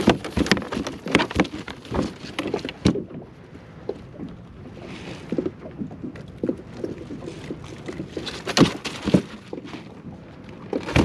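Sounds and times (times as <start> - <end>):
thumps on plastic kayak: 0.0 - 3.1, 8.2 - 9.7, 10.7 - 11.0
rustles clicks and knocks: 0.0 - 3.2, 5.2 - 10.0, 10.6 - 11.0.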